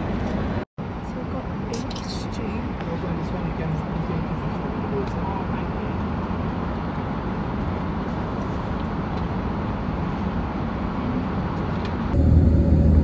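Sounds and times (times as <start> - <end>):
jet engine cabin rumble: 0.0 - 13.0
steady hum: 12.0 - 13.0.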